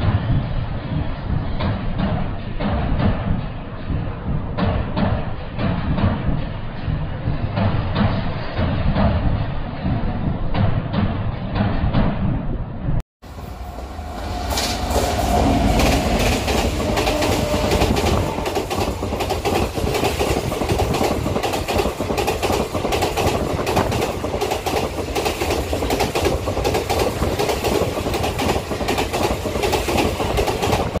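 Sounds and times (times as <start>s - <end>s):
train wheels clickety-clack: 0.0s - 12.5s, 13.8s - 31.0s
locomotive low rumble: 12.4s - 20.0s.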